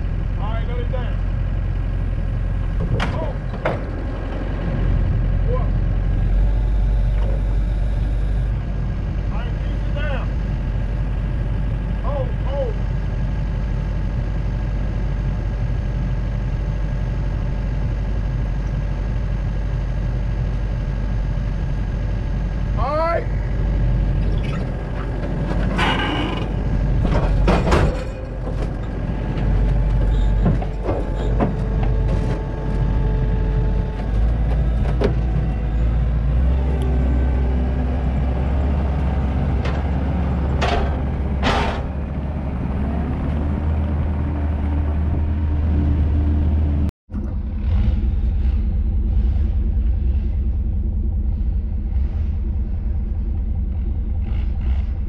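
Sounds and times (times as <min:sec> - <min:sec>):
loader engine running under load: 0:00.0 - 0:55.0
low engine rumble: 0:00.0 - 0:55.0
hydraulic whine: 0:02.1 - 0:55.0.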